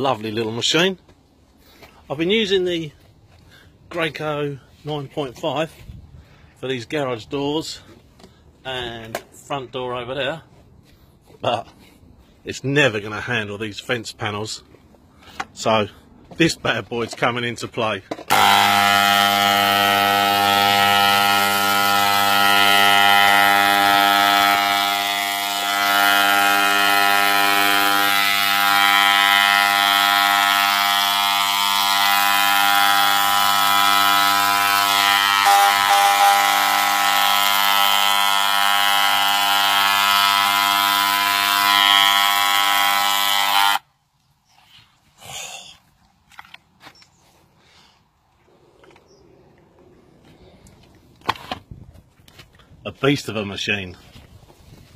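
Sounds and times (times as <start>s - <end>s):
paint sprayer running: 18.3s - 43.9s.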